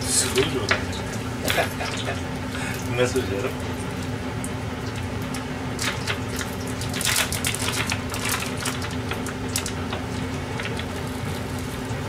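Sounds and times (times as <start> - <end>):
steady low hum: 0.0 - 12.0
plastic packaging crinkling: 5.8 - 9.8.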